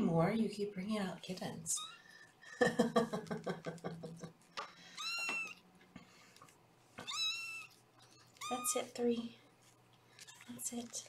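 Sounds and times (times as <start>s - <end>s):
kitten meowing: 5.0s - 5.6s, 7.0s - 8.9s.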